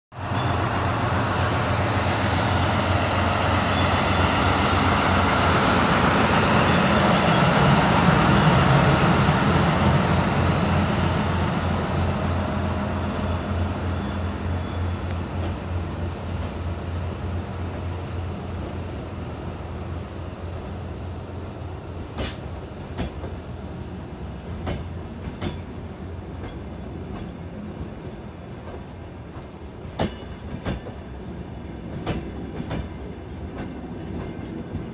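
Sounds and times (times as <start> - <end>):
diesel train engine rumbling: 0.1 - 34.9
train cars rolling by: 0.1 - 34.9
train wheels clicking over rail joints: 22.0 - 23.7, 24.4 - 34.9.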